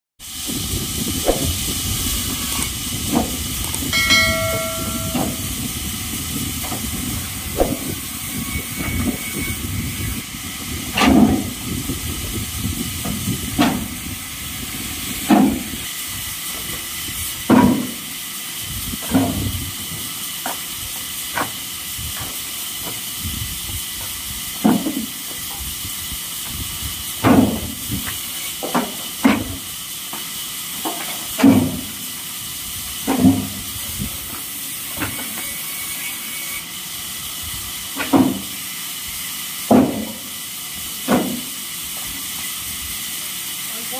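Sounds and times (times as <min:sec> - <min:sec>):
wood slabs clattering into truck bed: 0:10.9 - 0:11.6, 0:13.0 - 0:14.0, 0:15.2 - 0:15.7, 0:17.4 - 0:18.0, 0:19.0 - 0:19.5, 0:24.6 - 0:25.6, 0:27.2 - 0:29.6, 0:30.8 - 0:32.0, 0:33.0 - 0:33.7, 0:34.3 - 0:35.5, 0:37.9 - 0:38.6, 0:39.7 - 0:40.4, 0:41.0 - 0:42.2.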